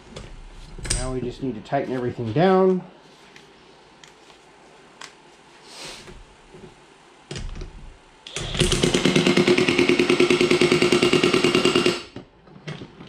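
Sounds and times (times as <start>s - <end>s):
impact wrench hammering: 8.3s - 12.2s.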